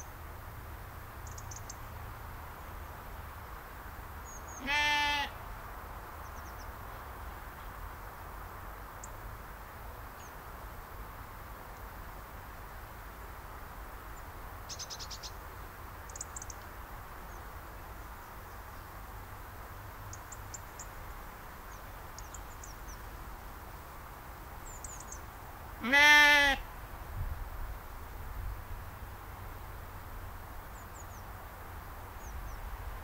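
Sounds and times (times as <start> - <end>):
sheep bleating: 4.6 - 5.4, 25.8 - 26.7.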